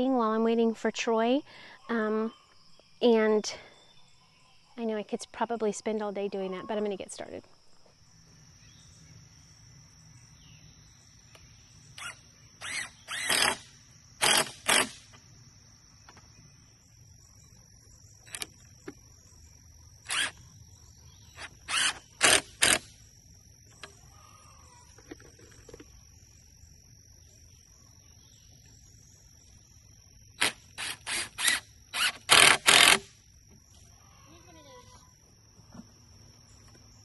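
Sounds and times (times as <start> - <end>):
high insect buzz: 6.7 - 37.0
cordless drill driving screws: 12.0 - 13.6, 20.1 - 20.4, 21.4 - 22.8, 30.4 - 33.1.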